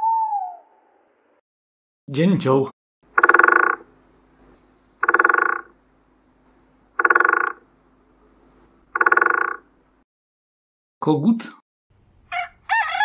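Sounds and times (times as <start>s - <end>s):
woodpecker drumming: 3.0s - 9.8s.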